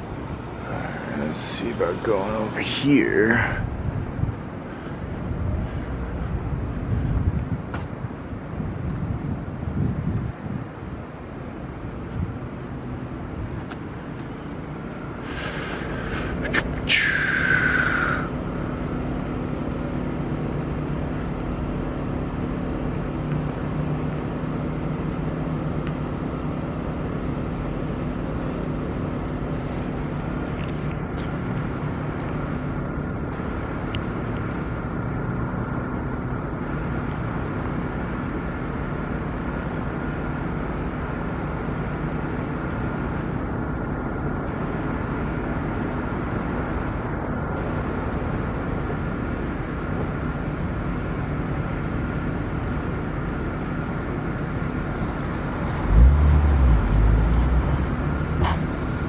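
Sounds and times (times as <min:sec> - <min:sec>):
constant low hum: 0:00.0 - 0:59.0
vehicles idling: 0:00.0 - 0:59.0
hiss with falling whistle: 0:16.9 - 0:18.3.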